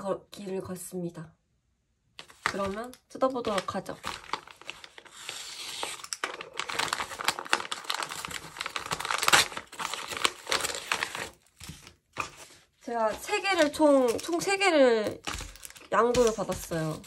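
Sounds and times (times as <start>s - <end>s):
packaging crinkling and rustling: 2.2s - 17.0s
envelope paper tearing: 3.4s - 17.0s.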